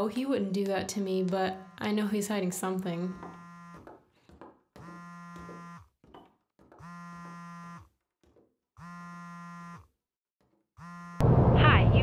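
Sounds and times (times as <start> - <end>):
phone vibrating on table: 1.1 - 10.0, 10.8 - 11.2.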